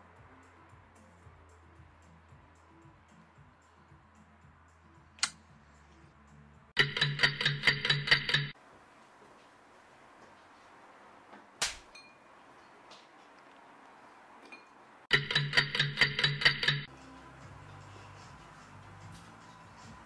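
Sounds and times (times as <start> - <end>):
metal spoon clinking ceramic bowl: 14.5 - 16.9.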